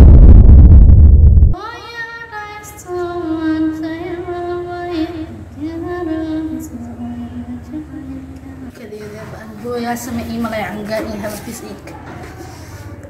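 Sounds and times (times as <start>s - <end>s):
loud deep intro music: 0.0s - 1.6s.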